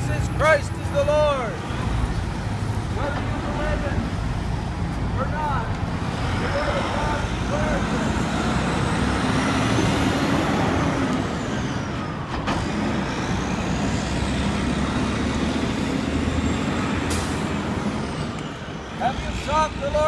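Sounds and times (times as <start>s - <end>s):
heavy vehicle engine running: 0.0s - 20.0s
street traffic: 0.0s - 20.0s.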